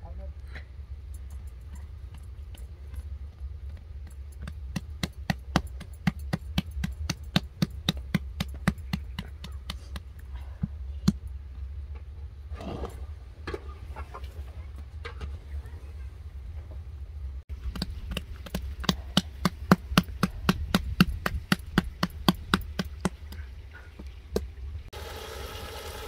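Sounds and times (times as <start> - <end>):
hands patting bread dough: 3.6 - 11.2, 17.5 - 24.5.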